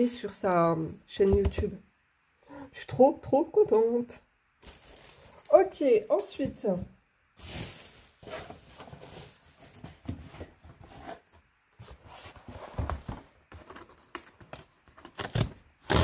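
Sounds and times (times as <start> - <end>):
packaging rustling: 4.6 - 5.6, 7.4 - 9.9.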